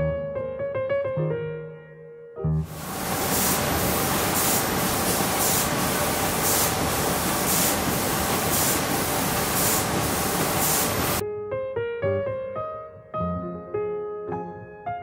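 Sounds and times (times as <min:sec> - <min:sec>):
laminating machine hissing: 0:02.7 - 0:11.2.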